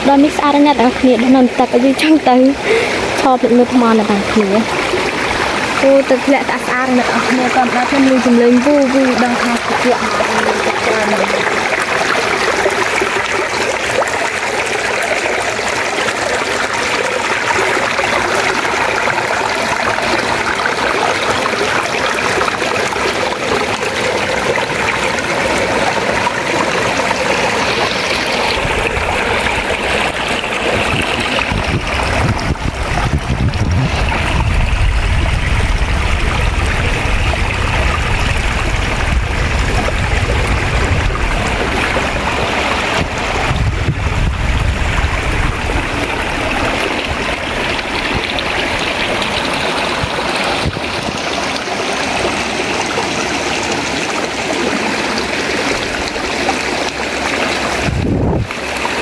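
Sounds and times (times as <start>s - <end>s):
stream rushing over rocks: 0.0s - 59.0s
deep rumble: 24.2s - 51.3s, 57.8s - 58.5s.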